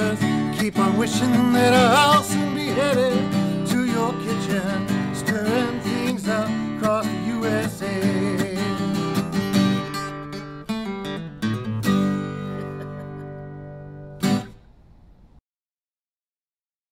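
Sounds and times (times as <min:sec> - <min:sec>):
man singing: 0:00.0 - 0:09.4
acoustic guitar strumming: 0:00.0 - 0:14.8.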